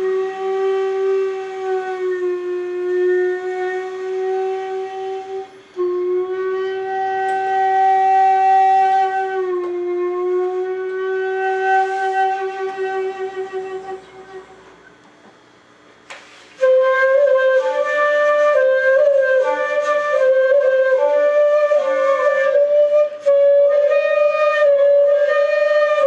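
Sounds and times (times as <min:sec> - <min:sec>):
bamboo flutes playing long notes: 0:00.0 - 0:14.9, 0:16.5 - 0:26.0.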